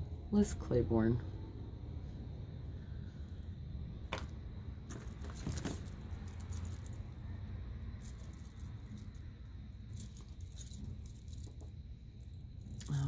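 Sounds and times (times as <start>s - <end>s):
jewelry clinking and jingling: 4.1s - 13.0s.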